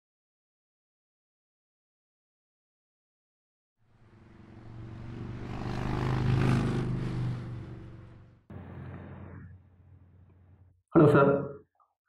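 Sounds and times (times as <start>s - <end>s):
motorcycle engine running: 4.0s - 9.4s.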